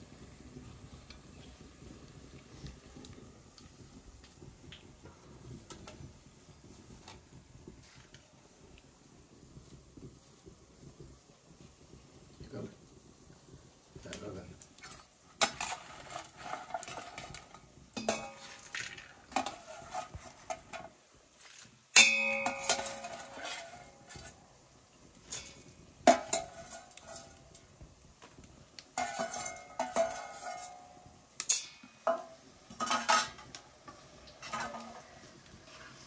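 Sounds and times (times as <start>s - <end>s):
spoon scraping and clinking on steel: 15.4s - 20.8s, 22.0s - 24.4s, 29.0s - 35.2s.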